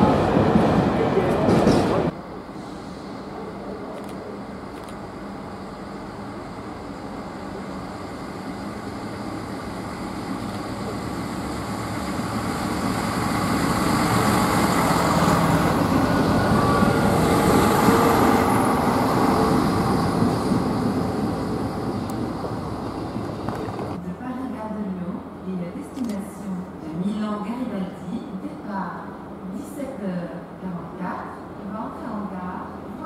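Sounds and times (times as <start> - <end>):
train rumbling past: 0.0 - 25.4.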